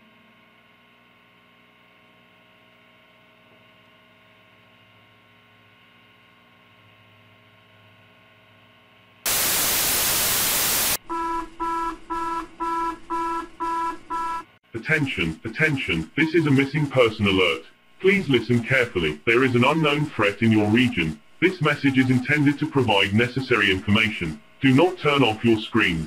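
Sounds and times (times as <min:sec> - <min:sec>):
loud static burst: 0:09.3 - 0:11.0.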